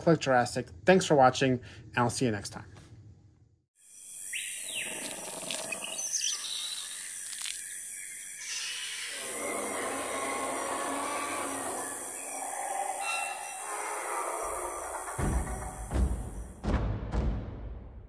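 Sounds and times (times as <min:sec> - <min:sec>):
falling animal call: 0:08.4 - 0:16.0.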